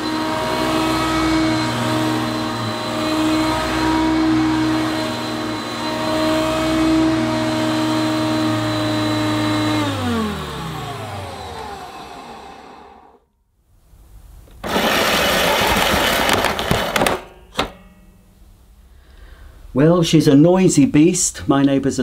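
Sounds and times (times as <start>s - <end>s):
vacuum cleaner motor running: 0.0s - 13.2s, 14.6s - 17.2s.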